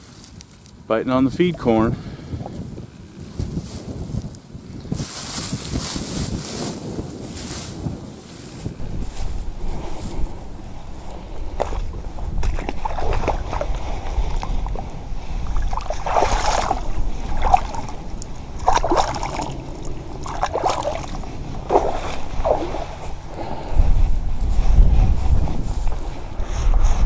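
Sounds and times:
wind rumbling on microphone: 0.0s - 27.0s
water splashing and sloshing: 8.8s - 26.1s.

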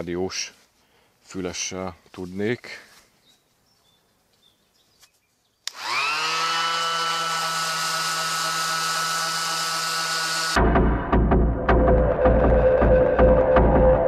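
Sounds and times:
electric sander running: 5.7s - 10.6s
music: 10.6s - 14.0s.

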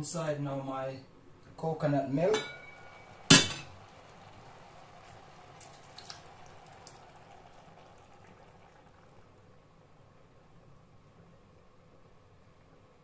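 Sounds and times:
liquid pouring into pot: 2.4s - 9.8s.

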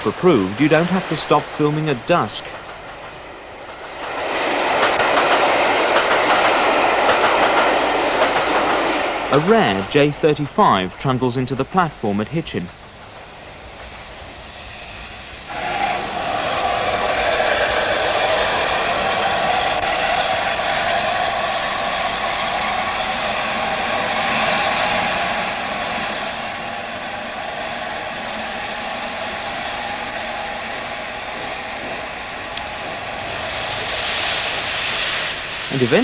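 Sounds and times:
steam hissing from locomotive: 0.0s - 36.0s.

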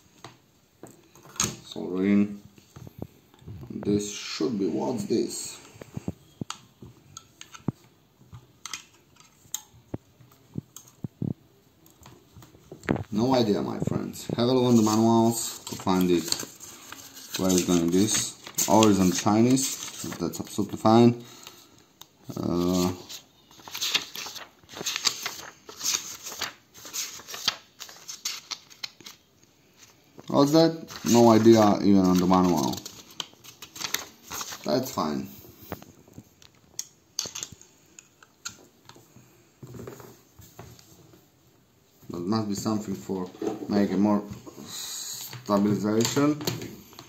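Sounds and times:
paper pages rustling: 12.0s - 20.9s, 22.2s - 37.6s.

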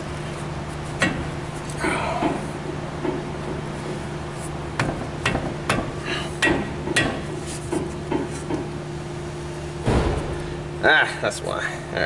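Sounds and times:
sharp knocks on brake caliper: 9.8s - 10.5s.

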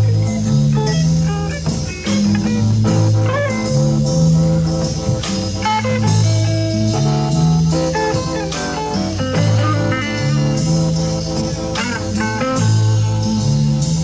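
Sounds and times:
bass notes: 0.0s - 14.0s
drums: 0.0s - 14.0s
electric guitar lines: 0.0s - 14.0s
tape hiss: 0.0s - 14.0s.

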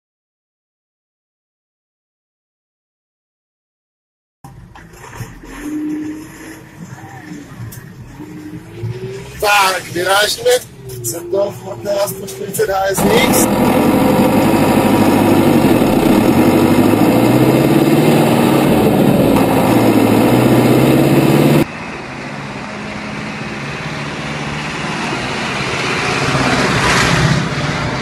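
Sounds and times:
tractor diesel engine running: 7.9s - 24.2s.

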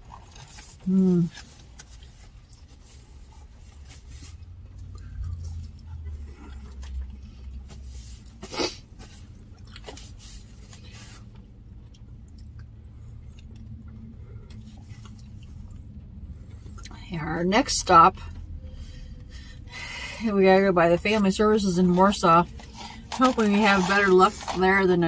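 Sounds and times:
chewing: 0.0s - 8.4s, 9.2s - 17.0s
paper napkins rustling: 21.8s - 25.0s.

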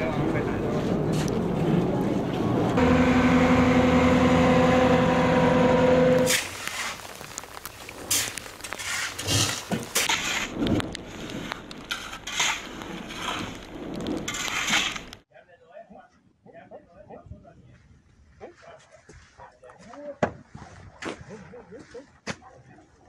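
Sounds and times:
loud motor drone: 1.9s - 6.3s
shovels scraping ash on concrete: 6.2s - 15.2s.

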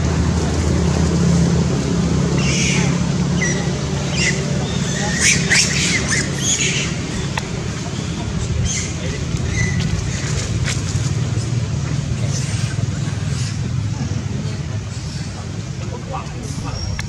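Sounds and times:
monkeys squealing and shrieking: 2.4s - 10.7s.

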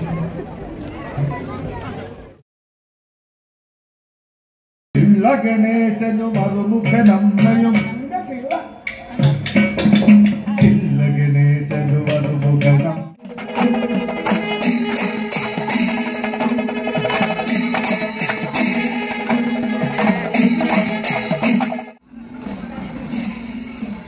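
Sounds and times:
drums and jingling cymbals: 8.8s - 10.9s, 13.2s - 24.0s.

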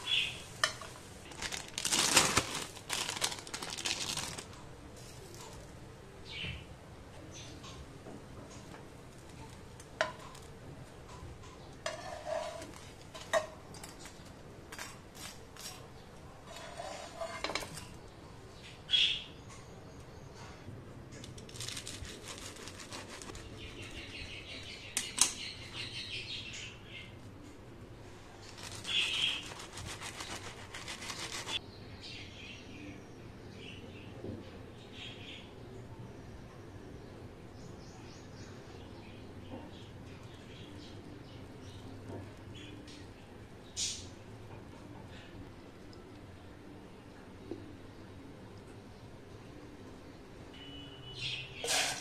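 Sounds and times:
faint birds chirping: 0.0s - 0.8s, 21.6s - 51.7s
metal spatula scraping a pan: 11.8s - 13.4s, 16.5s - 17.8s, 51.6s - 52.0s
knife sawing through toast: 28.8s - 31.6s.

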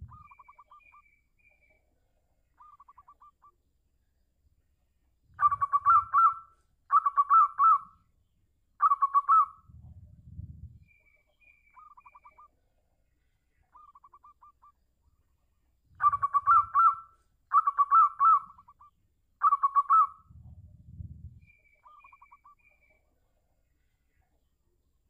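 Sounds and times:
low dull thumps: 9.7s - 10.8s, 20.3s - 21.4s
dove cooing: 16.0s - 21.1s.

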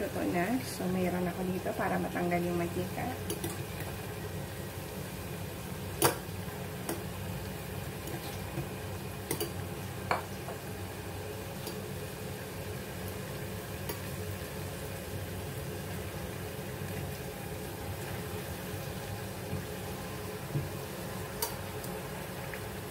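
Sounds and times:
potatoes sizzling in oil: 0.0s - 22.9s
utensil clicking against pan: 9.3s - 9.6s.

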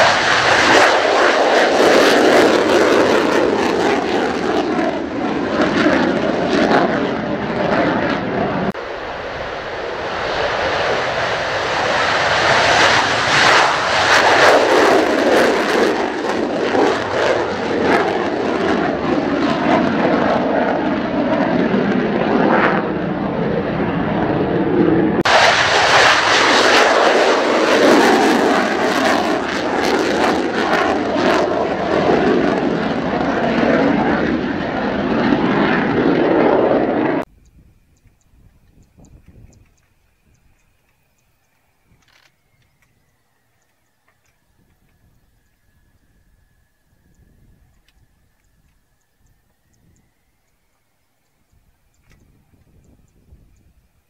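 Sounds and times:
jet engine roar with crackling: 0.0s - 54.0s.

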